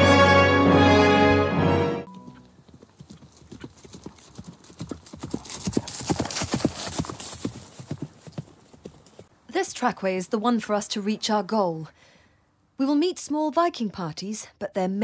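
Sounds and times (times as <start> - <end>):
background music: 0.0 - 2.6
horse hooves clip-clopping: 2.1 - 9.3.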